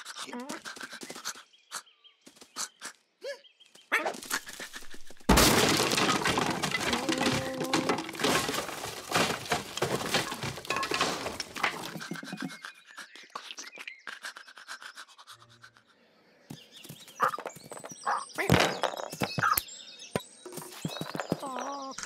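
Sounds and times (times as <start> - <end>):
glass shattering: 5.3 - 11.8
window smashing: 5.3 - 11.8
wood and debris clattering: 5.3 - 12.5, 17.3 - 19.6, 20.5 - 22.0.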